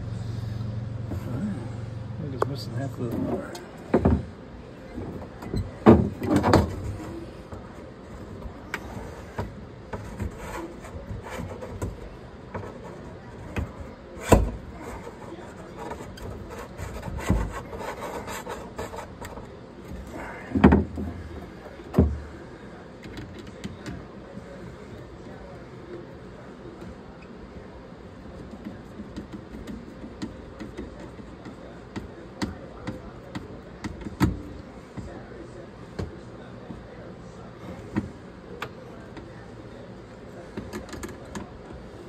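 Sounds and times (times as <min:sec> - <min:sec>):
quiet rustling and scraping: 0:00.3 - 0:42.0
hard objects knocking: 0:03.2 - 0:04.3, 0:20.4 - 0:21.2.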